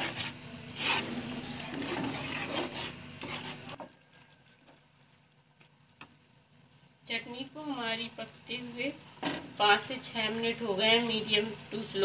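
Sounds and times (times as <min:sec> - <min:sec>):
spatula scraping a pan: 0:00.0 - 0:03.8.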